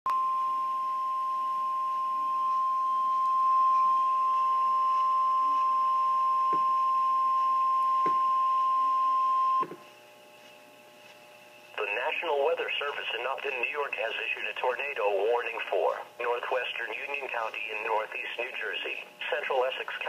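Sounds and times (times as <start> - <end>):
steady high alarm tone: 0.1 - 10.5.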